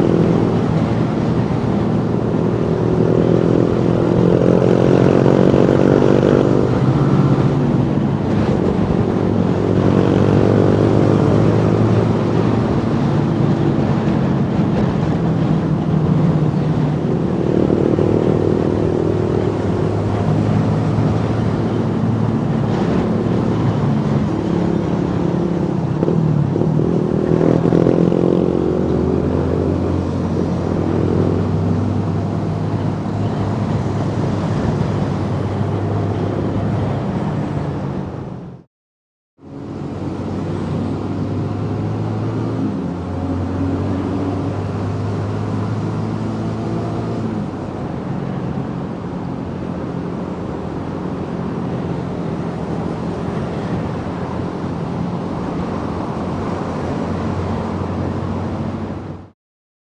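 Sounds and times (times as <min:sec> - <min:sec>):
motorcycle engine revving: 0:00.0 - 0:36.9
wind and road noise: 0:00.0 - 0:38.7, 0:39.4 - 0:59.4.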